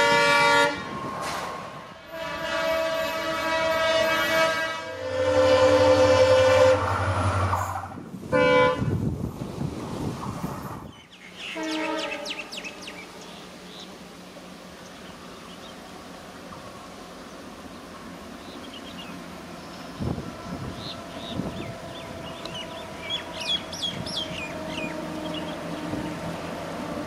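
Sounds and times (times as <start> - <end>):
locomotive horn blasts: 0.0 - 1.2, 2.0 - 7.5, 8.3 - 9.0, 11.5 - 13.0, 20.0 - 26.2
train running rumble: 0.0 - 27.0.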